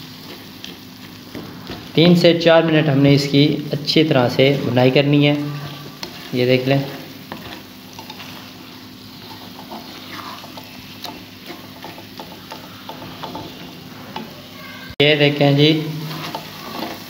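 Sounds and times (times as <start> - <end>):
food sizzling in a pan: 0.0 - 17.0
spatula scraping metal pan: 5.3 - 14.7, 15.6 - 17.0.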